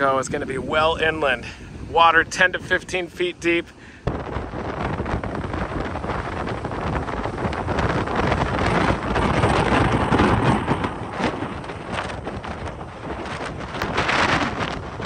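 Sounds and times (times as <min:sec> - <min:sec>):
wind buffeting microphone: 0:00.0 - 0:15.0
storm surge churning and breaking: 0:00.3 - 0:15.0.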